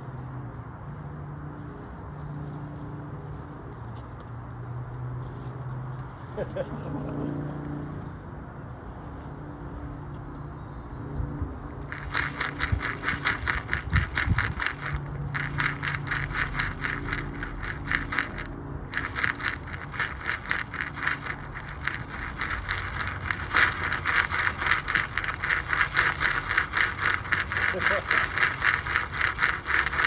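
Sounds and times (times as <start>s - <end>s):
low drone: 0.0s - 30.0s
scraping crackling noise: 11.2s - 30.0s.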